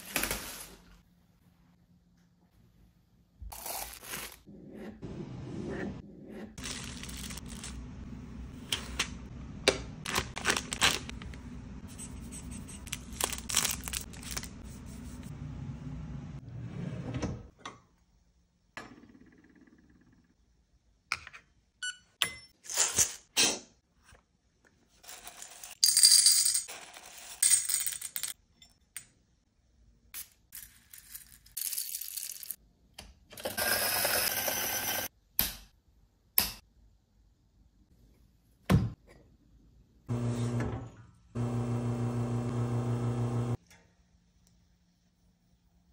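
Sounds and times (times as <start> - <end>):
electric coffee grinder running: 41.4 - 43.6.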